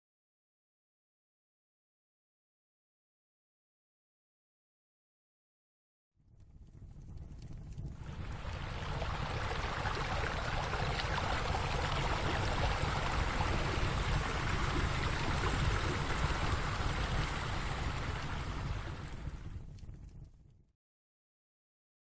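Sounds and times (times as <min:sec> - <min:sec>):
running water rushing: 0:08.0 - 0:19.3.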